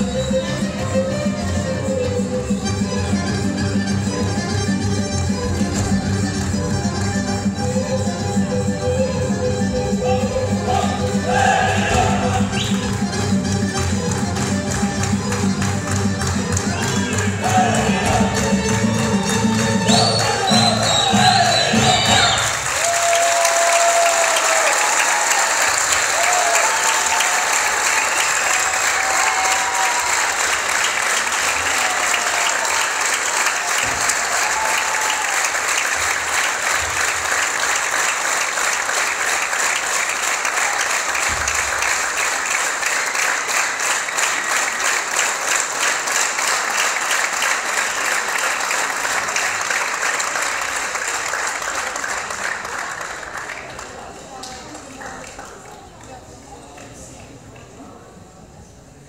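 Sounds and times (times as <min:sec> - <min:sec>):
audience applauding: 0:10.8 - 0:56.2.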